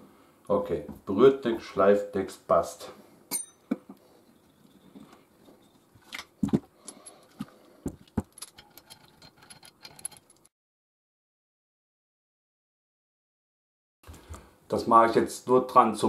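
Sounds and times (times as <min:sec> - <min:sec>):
small metal parts clinking: 0:05.5 - 0:10.5.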